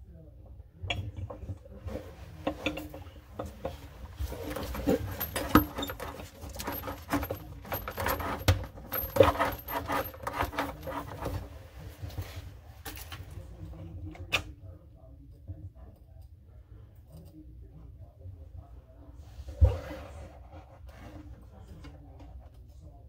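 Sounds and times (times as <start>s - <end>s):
tools and parts clinking: 2.4s - 11.5s.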